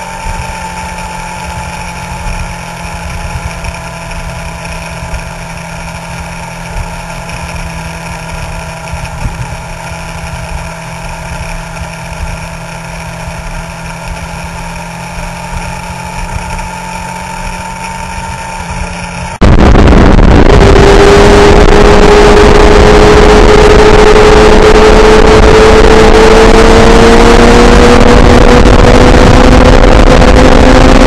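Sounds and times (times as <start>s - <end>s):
motorcycle engine cruising: 0.0s - 31.0s
wind buffeting microphone: 19.4s - 23.1s.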